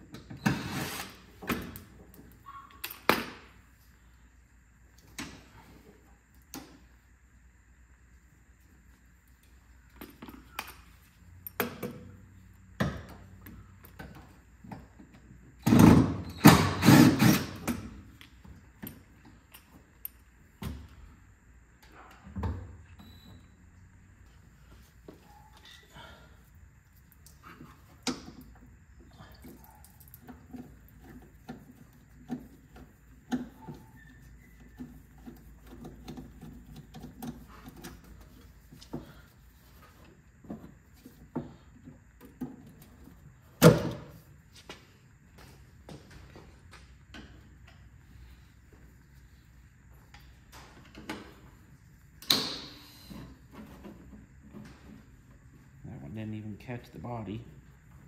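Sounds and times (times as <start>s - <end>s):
impact wrench bursts: 15.6s - 17.8s.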